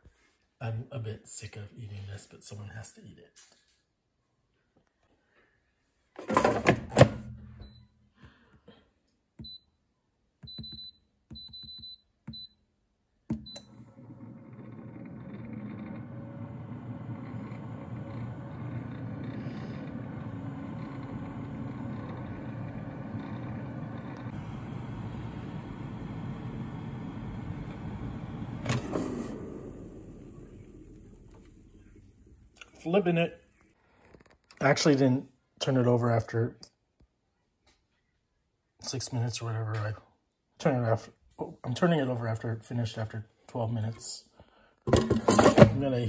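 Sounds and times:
air fryer fan running: 13.6 - 32.6
air fryer basket clattering: 44.9 - 45.8.

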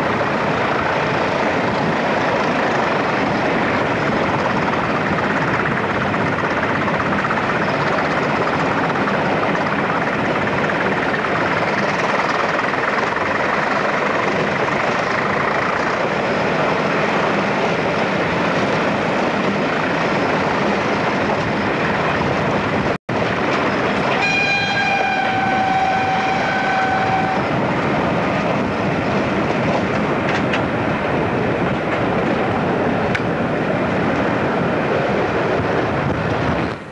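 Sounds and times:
train engine and wind noise: 0.0 - 36.9
locomotive horn: 24.1 - 27.6.

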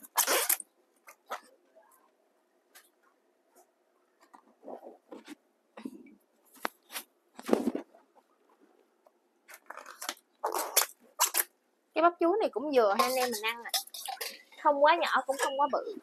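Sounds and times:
banana blossom bracts snapping and tearing: 9.4 - 11.5.

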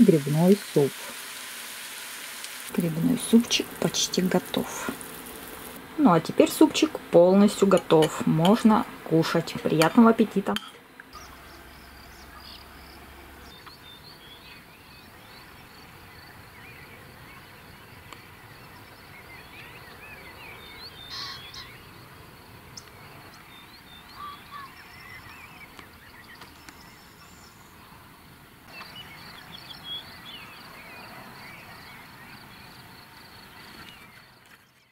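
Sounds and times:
steady hiss: 0.0 - 9.6
birds chirping and trilling: 11.0 - 28.0, 28.7 - 34.9.

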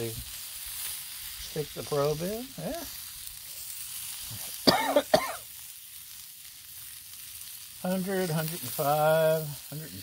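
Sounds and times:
ribs sizzling on a griddle: 0.0 - 10.0
cough-like vocal sound: 4.6 - 5.4.

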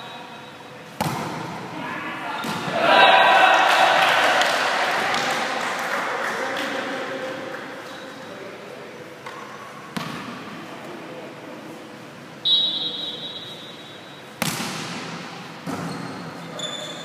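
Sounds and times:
whistle blast: 12.4 - 14.0
ball bounce: 14.4 - 15.0.

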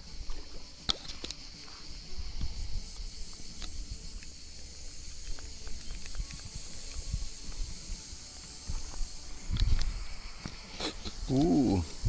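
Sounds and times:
insect chorus: 0.0 - 12.0
sharp clicks: 2.9 - 7.7.

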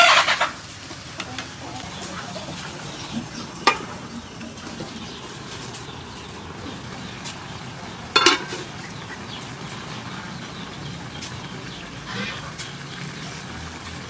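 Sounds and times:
metal lid clatter: 3.6 - 4.0, 8.1 - 8.7.

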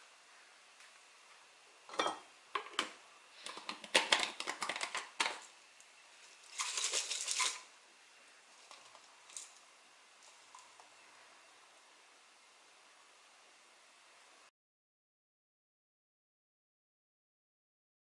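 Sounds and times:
fried shallots rustling in jar: 6.2 - 7.7, 8.5 - 10.8.

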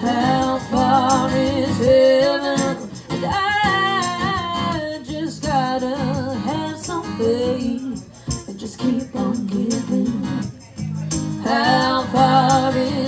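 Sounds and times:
strummed acoustic guitar: 0.0 - 13.0
women singing into microphones: 0.0 - 13.0
tambourine jingling: 5.7 - 13.0.

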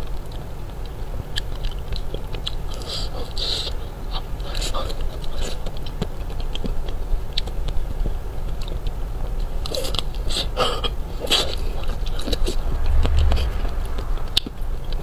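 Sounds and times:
crunchy ice cream bar chewing: 0.2 - 12.6.

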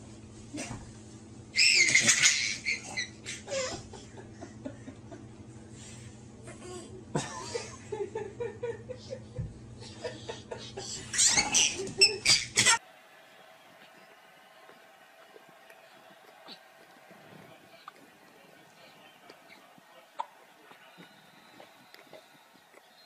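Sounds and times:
baby squealing: 1.6 - 3.2, 11.1 - 12.8
baby giggling: 1.6 - 4.0, 10.8 - 12.8.

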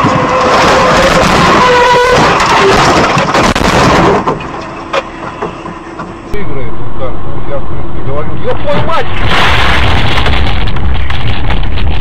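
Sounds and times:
vehicle horn: 0.0 - 2.8
harsh dashcam noise: 8.1 - 12.0.

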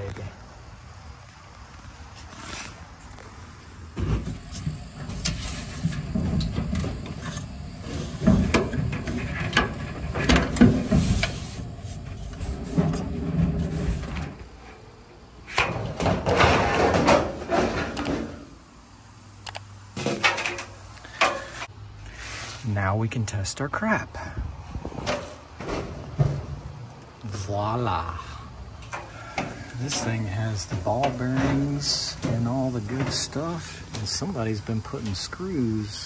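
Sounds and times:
sheet metal scraping and rattling: 4.0 - 14.9, 15.5 - 18.5, 24.9 - 27.4, 28.8 - 34.4.

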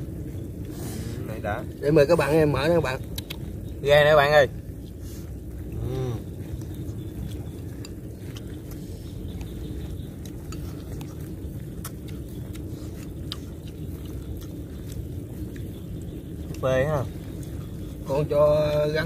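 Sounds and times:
steady low rumble: 0.0 - 19.0
chopsticks tapping ceramic bowls: 10.2 - 11.1.

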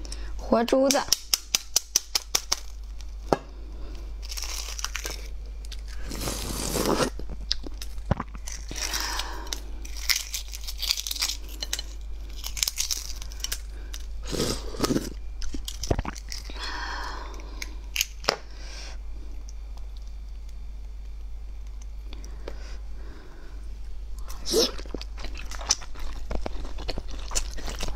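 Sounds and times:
egg shell crackling as peeled: 0.9 - 18.4.

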